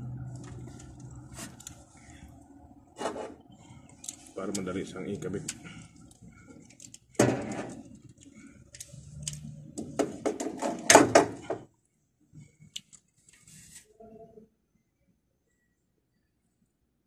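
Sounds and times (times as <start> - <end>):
wires rustling by hand: 0.2 - 10.8, 12.3 - 14.0.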